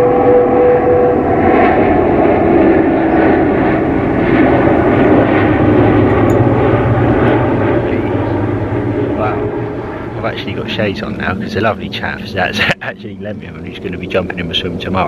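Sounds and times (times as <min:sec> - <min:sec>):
aircraft engine drone overhead: 0:00.0 - 0:15.0.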